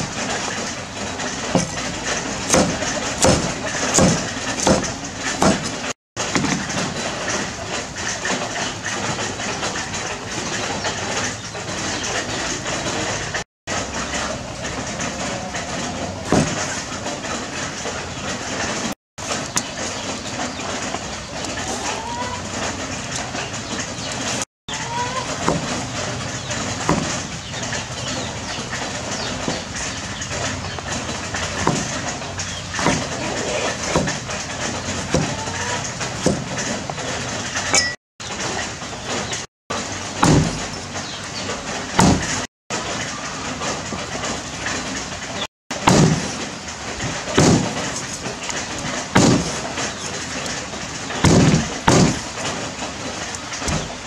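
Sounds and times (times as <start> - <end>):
cleaver chopping on wooden board: 2.5 - 6.6, 16.3 - 16.7, 26.9 - 27.2, 31.6 - 32.0, 32.8 - 33.1, 40.2 - 40.6, 42.0 - 42.4, 45.9 - 46.4, 47.4 - 47.9, 49.2 - 49.6, 51.2 - 52.2.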